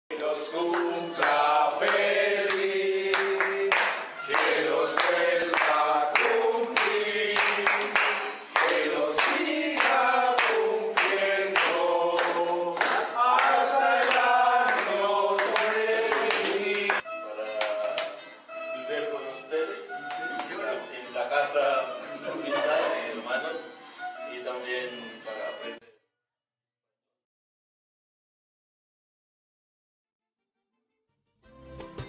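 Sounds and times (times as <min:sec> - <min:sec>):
group singing together: 0:00.1 - 0:17.0, 0:21.5 - 0:23.7
hand clapping in time: 0:00.1 - 0:18.4, 0:19.9 - 0:20.6.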